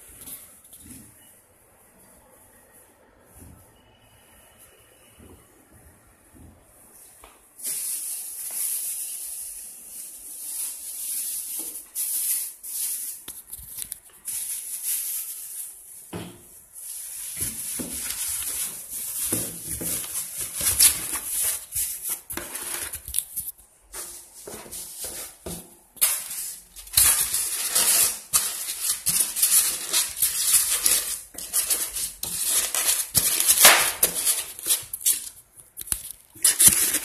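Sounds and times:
plastic wrapping crinkling: 0:07.6 - 0:16.1, 0:16.8 - 0:37.0.

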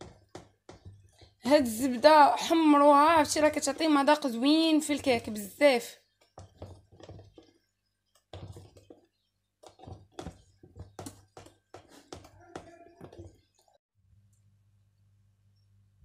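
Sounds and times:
whisk tapping against plastic bowl: 0:00.0 - 0:01.4, 0:06.1 - 0:13.7.

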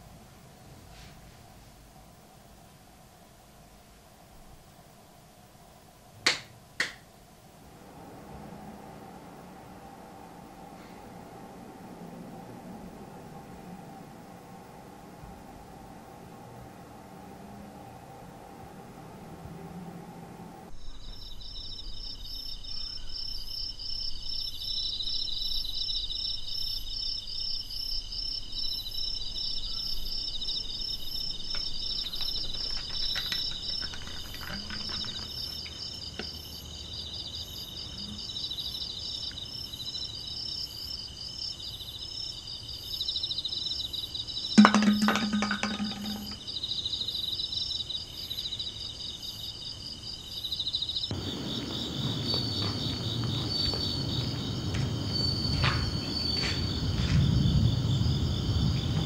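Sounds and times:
insects chirping in high trills: 0:20.7 - 0:59.0.

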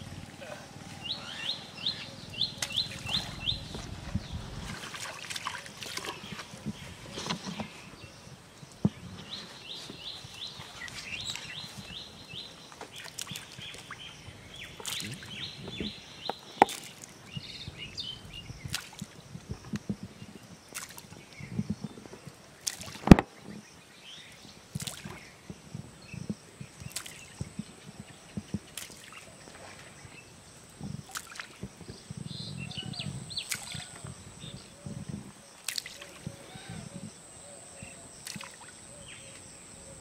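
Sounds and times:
small splashes on water: 0:04.7 - 0:06.6, 0:12.9 - 0:14.0, 0:14.8 - 0:15.4, 0:16.6 - 0:17.2, 0:18.7 - 0:19.2, 0:20.7 - 0:21.2, 0:22.6 - 0:23.2, 0:24.8 - 0:25.2, 0:26.8 - 0:27.4, 0:28.6 - 0:30.0, 0:31.0 - 0:31.8, 0:33.4 - 0:34.2, 0:35.6 - 0:36.3, 0:38.2 - 0:38.8.

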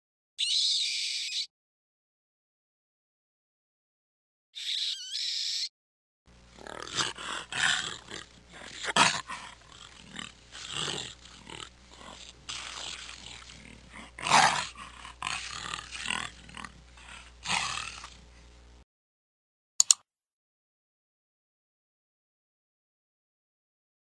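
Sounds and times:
lion cubs growling: 0:06.5 - 0:18.4
quick clicks: 0:19.8 - 0:20.0.

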